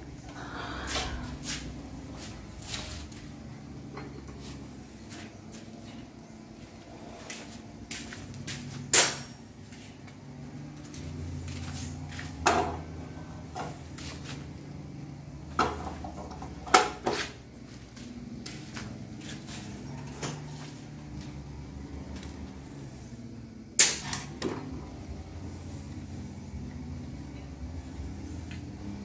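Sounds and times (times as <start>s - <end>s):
metal tools clinking on frame: 8.9s - 9.6s.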